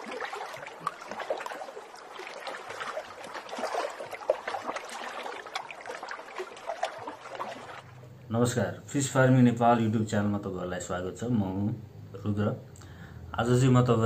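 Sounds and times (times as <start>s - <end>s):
fish flapping and splashing: 0.0s - 8.0s.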